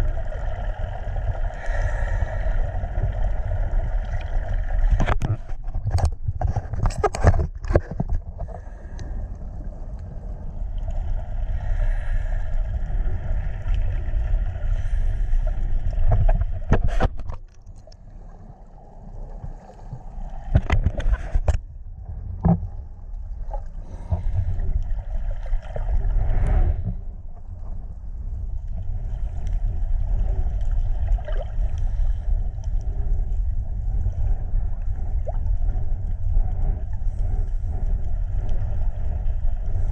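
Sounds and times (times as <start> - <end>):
underwater rumble and sloshing: 0.0 - 39.9
water splashes: 28.8 - 32.2.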